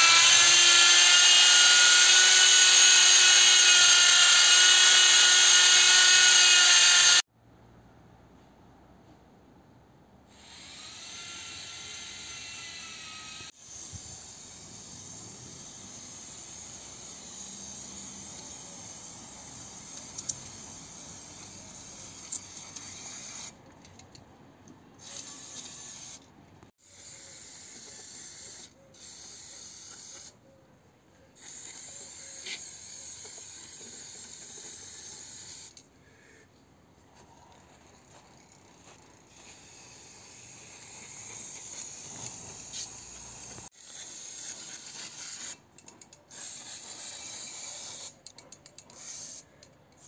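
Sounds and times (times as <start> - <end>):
spray-paint can hissing: 13.6 - 23.5, 25.0 - 26.2, 26.9 - 30.4, 31.4 - 35.8, 39.3 - 45.6, 46.3 - 48.2, 48.9 - 49.5.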